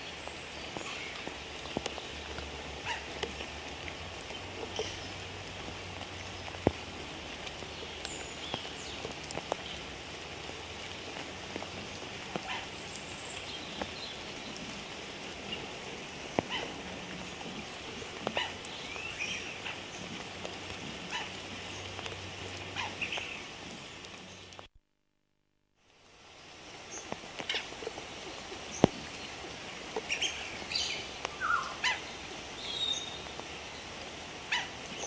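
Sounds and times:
steady rain falling: 0:00.0 - 0:24.7, 0:25.8 - 0:35.0.

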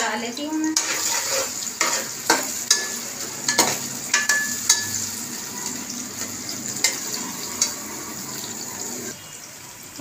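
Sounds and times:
onions sizzling in hot oil: 0:00.0 - 0:10.0
metal spoon scraping pot: 0:00.8 - 0:05.4.

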